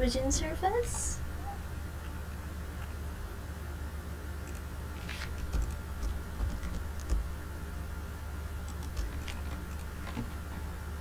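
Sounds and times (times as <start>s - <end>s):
steady low hum: 0.0s - 11.0s
computer mouse and keyboard clicks: 4.4s - 7.3s, 8.6s - 10.3s.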